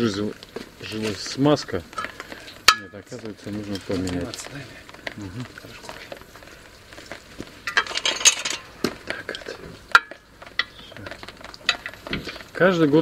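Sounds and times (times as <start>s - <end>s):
hand tools and metal parts clinking: 0.8s - 4.6s, 7.6s - 12.4s
scraping rattle: 7.7s - 8.8s.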